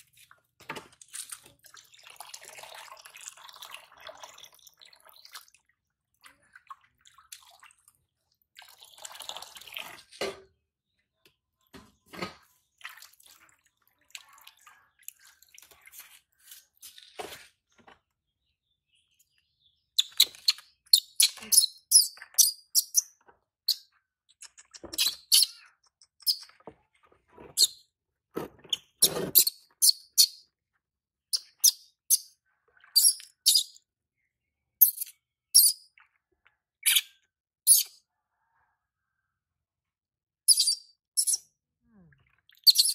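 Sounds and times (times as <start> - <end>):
baby monkey squeaking: 24.9 - 25.6, 40.5 - 41.4, 42.6 - 42.9.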